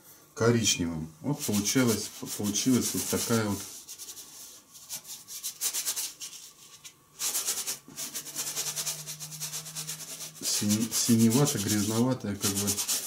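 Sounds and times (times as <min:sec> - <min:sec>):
paintbrush rasping on canvas: 0:01.4 - 0:13.0.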